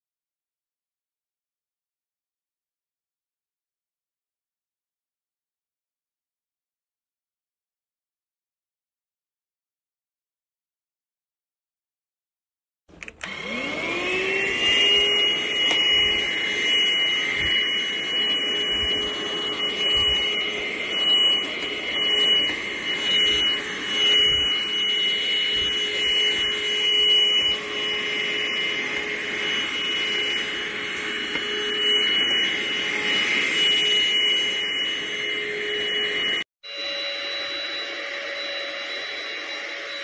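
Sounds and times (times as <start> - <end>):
vacuum cleaner motor whining: 12.9 - 40.0.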